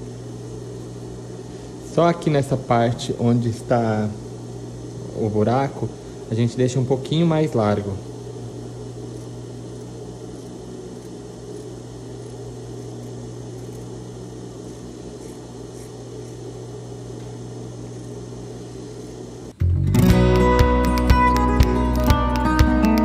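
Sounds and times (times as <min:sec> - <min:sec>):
electric motor humming: 0:00.0 - 0:23.0.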